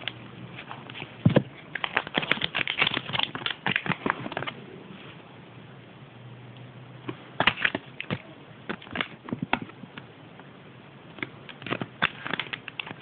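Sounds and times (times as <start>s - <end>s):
paper leaflet crinkling: 0.0s - 4.6s, 11.5s - 13.0s.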